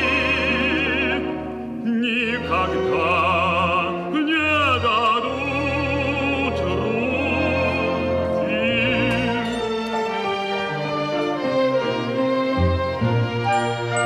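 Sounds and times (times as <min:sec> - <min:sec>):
operatic baritone singing: 0:00.0 - 0:10.2
orchestra playing: 0:00.0 - 0:14.0.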